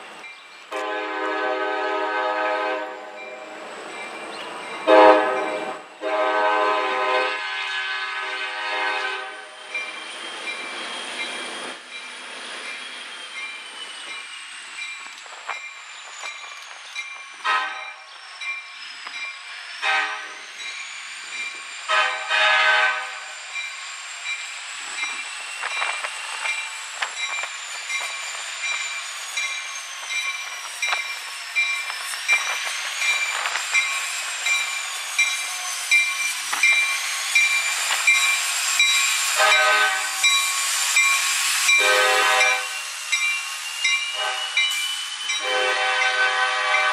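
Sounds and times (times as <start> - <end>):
locomotive bell ringing: 0.2 - 0.8, 3.1 - 5.9, 9.6 - 19.6, 23.1 - 46.9
locomotive horn blasts: 0.7 - 3.6, 4.8 - 9.5, 17.4 - 18.0, 19.8 - 20.3, 21.9 - 23.3, 39.4 - 40.2, 41.8 - 42.8, 44.2 - 44.6, 45.4 - 46.9
train wheels clicking: 3.5 - 46.9.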